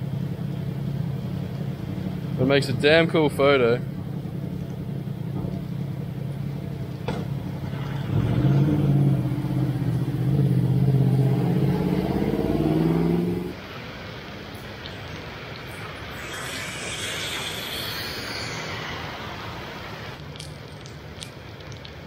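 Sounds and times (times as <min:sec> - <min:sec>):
vehicle engine running: 0:00.0 - 0:13.6
traffic on wet street: 0:00.0 - 0:22.0.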